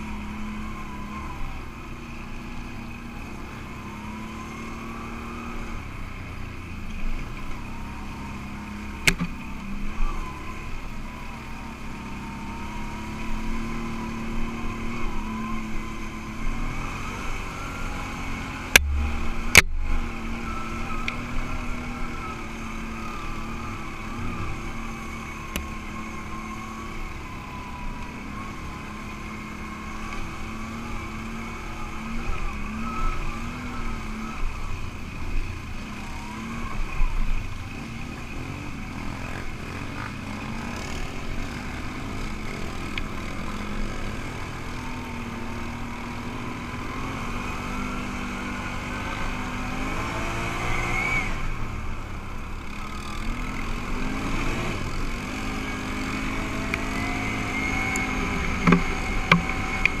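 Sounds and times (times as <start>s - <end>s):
atv engine accelerating: 0.0s - 60.0s
sharp knocks: 58.6s - 59.5s.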